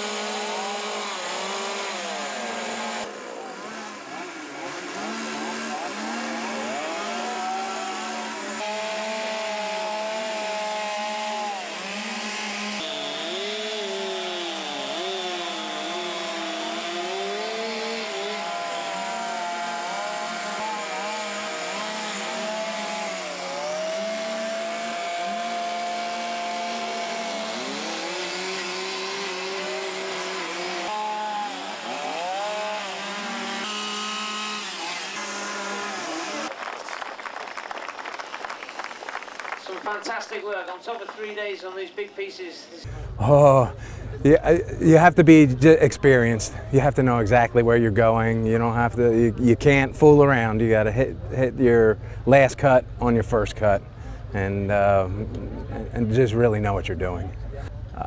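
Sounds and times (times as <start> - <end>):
chainsaws revving: 0.0 - 36.5.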